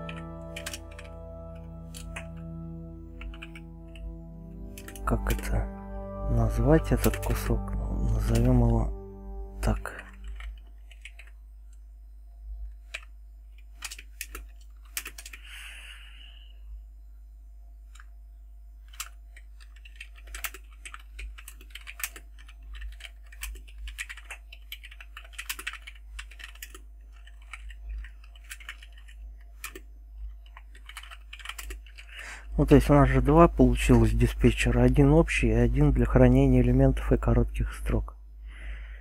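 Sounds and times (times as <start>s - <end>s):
computer keyboard typing: 0.0s - 5.7s, 6.8s - 8.8s, 9.7s - 11.4s, 12.8s - 15.5s, 18.8s - 32.3s
steady low hum: 0.0s - 13.7s.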